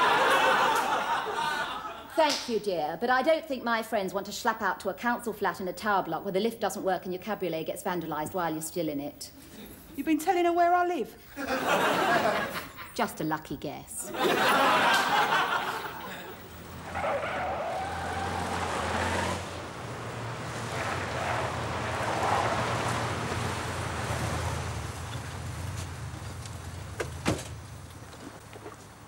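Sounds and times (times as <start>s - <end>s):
studio audience laughing: 0.0s - 2.2s, 11.3s - 13.0s, 14.1s - 16.5s.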